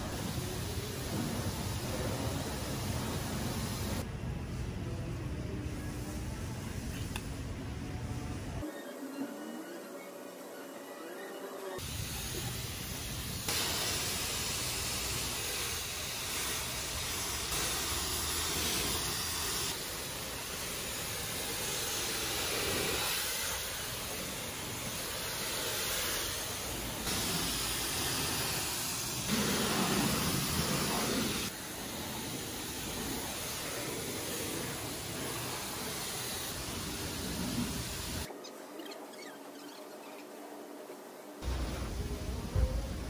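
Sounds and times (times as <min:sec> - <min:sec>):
pressure washer spray hissing: 0:00.0 - 0:04.0, 0:11.8 - 0:38.3.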